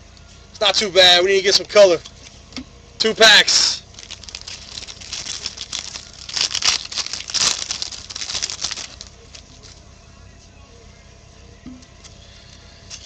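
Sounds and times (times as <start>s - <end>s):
wrapper tearing and crinkling: 3.8s - 9.8s.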